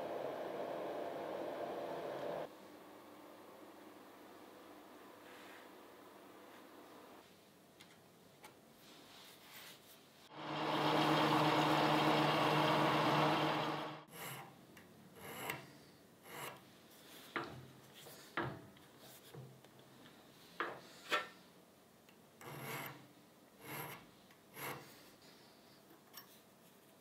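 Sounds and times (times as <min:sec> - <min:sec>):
lathe motor hum: 0:00.0 - 0:02.5, 0:10.3 - 0:14.1
file rasping on metal: 0:23.6 - 0:24.9.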